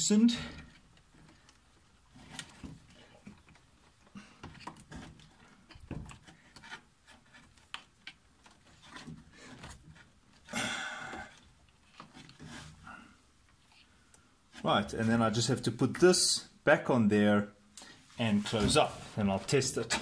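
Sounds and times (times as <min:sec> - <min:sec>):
hands rustling wiring: 0:00.1 - 0:14.9.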